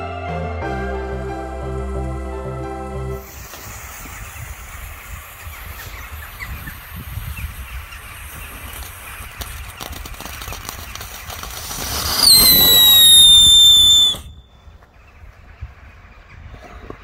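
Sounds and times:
firework sparks hissing crackle: 3.2 - 5.8, 8.2 - 14.3
firework whistle sliding down: 11.6 - 14.4.

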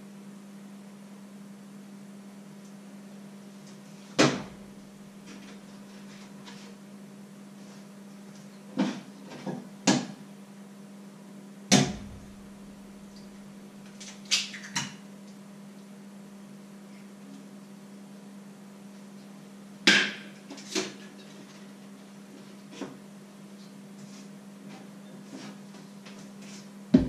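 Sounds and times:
steady low hum: 0.0 - 14.0, 21.4 - 27.0.

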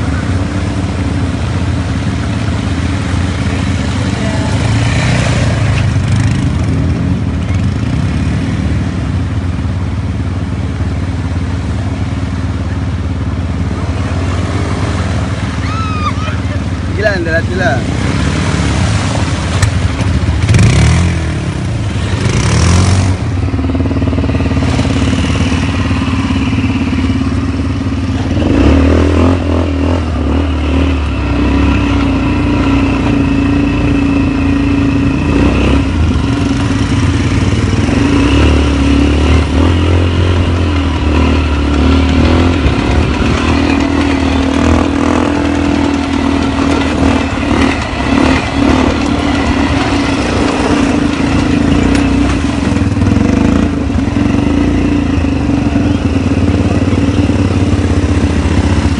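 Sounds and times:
water splashing: 0.0 - 28.8
quad bike engines running: 0.0 - 58.9.

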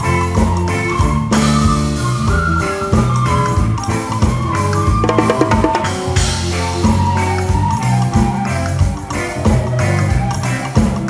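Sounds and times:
live band playing folk music: 0.0 - 11.0
drum kit beat: 4.9 - 9.0.

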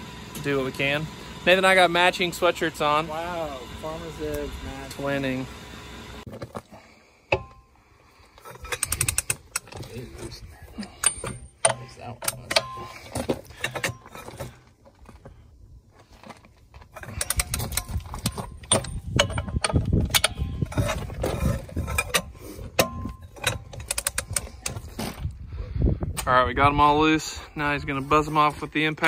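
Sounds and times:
metallic ratchet clicks and clinks: 8.6 - 9.7.

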